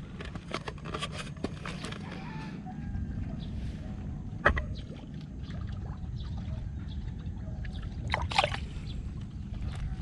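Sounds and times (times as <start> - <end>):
steady low rumble: 1.9 - 10.0
water splashing: 7.7 - 8.8.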